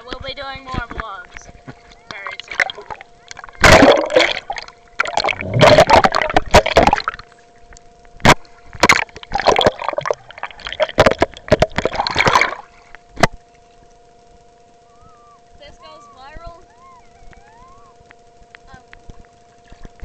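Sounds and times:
faint two-note hum: 0.0 - 20.0
water splashing over camera: 1.3 - 7.3, 8.2 - 13.4.

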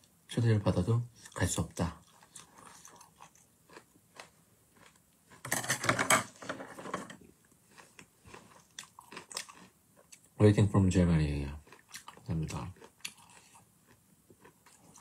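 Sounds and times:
person chewing food: 2.0 - 5.5, 7.4 - 10.4, 11.6 - 15.0.

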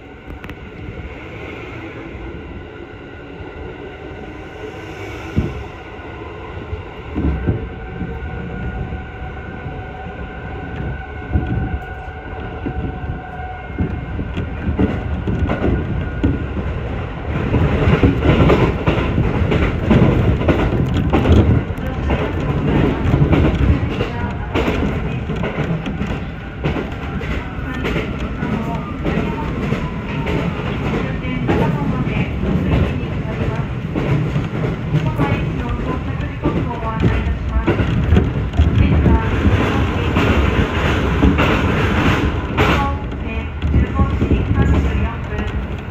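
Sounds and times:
train running noise: 0.0 - 45.9
train wheels knocking on rail joints: 17.4 - 45.9.

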